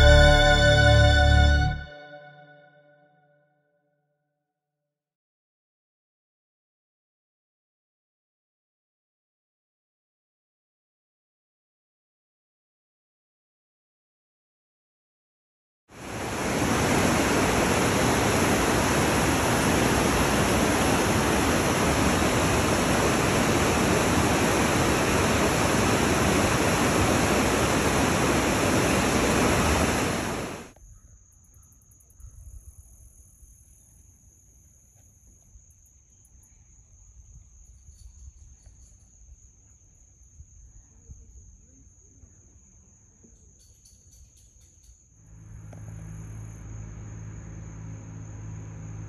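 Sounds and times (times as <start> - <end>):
thin high-pitched tone: 0.0 - 3.0
water rushing over rocks: 16.0 - 30.7.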